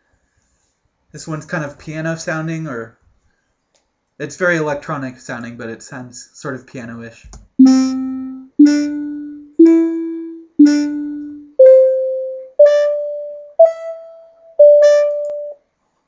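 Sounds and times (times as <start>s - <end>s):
synthesizer melody: 7.6s - 15.6s.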